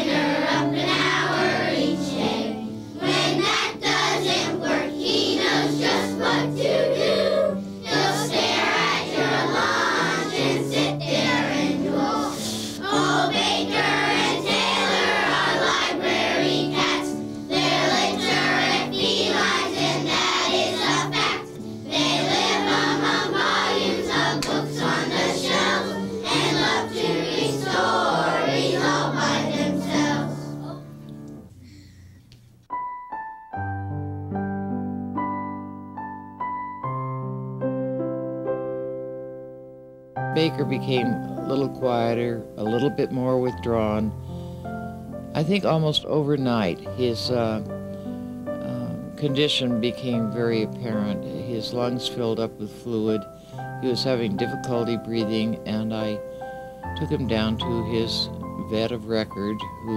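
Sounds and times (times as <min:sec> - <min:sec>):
children's choir singing: 0:00.0 - 0:30.9
musical accompaniment: 0:00.0 - 0:59.9.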